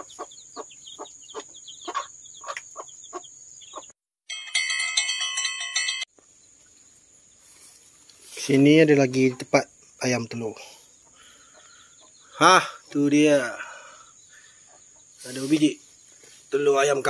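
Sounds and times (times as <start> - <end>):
chicks peeping: 0.0 - 3.9, 6.2 - 17.0
hen clucking: 0.0 - 3.9, 10.9 - 15.7
bright chiming jingle: 4.3 - 6.1.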